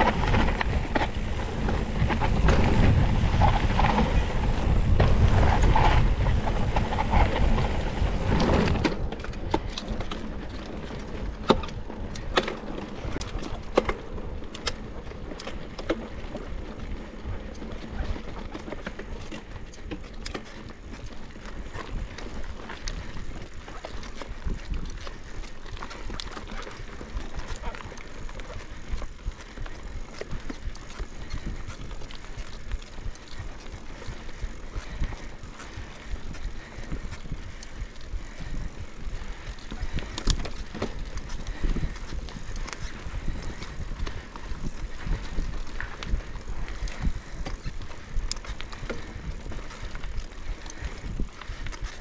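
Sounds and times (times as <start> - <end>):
wind rushing over microphone: 0.0 - 13.8, 28.9 - 52.0
bike clicks and rattles: 0.0 - 52.0
bike tyres rolling on dirt: 0.0 - 52.0.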